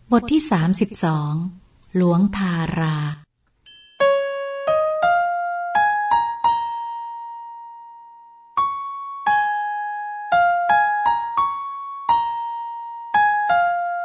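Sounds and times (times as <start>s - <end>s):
solo keyboard melody: 3.6s - 14.0s.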